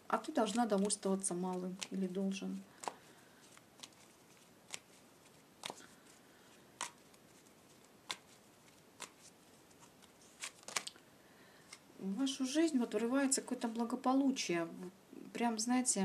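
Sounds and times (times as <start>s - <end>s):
cards being shuffled: 0.2s - 6.2s, 6.8s - 11.0s
sharp card snaps: 10.4s - 11.0s.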